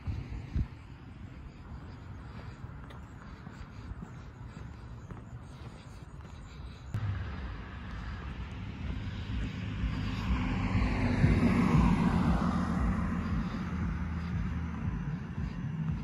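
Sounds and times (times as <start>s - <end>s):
low steady hum: 6.4s - 16.0s
motor vehicle passing: 7.0s - 16.0s.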